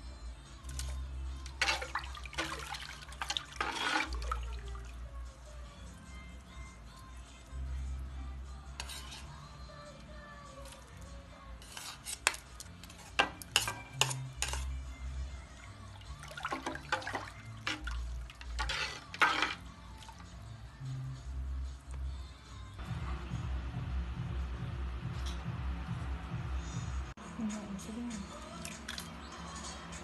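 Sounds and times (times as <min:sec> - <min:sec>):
metal spoon stirring in pot: 0:00.6 - 0:05.1, 0:08.6 - 0:20.4.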